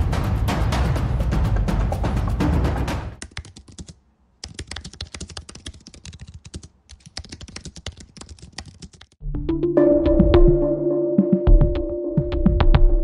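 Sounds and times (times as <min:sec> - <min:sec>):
typing on computer keyboard: 0:03.2 - 0:09.2.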